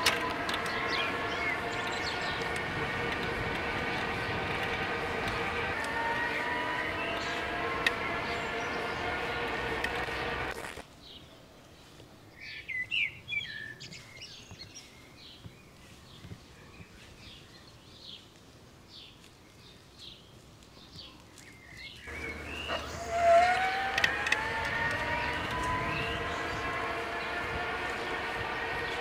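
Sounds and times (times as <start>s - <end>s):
electric motor whine: 0.0s - 10.8s, 22.1s - 29.0s
birds chirping: 0.0s - 29.0s.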